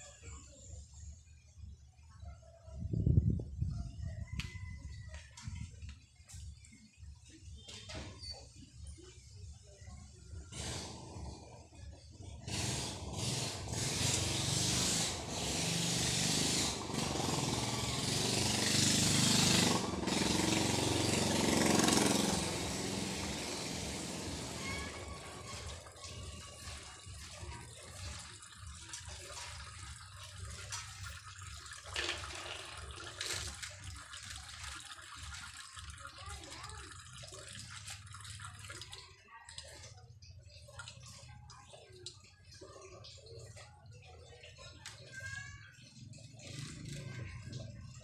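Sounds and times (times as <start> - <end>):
water rushing into filter housings: 10.4 - 48.0.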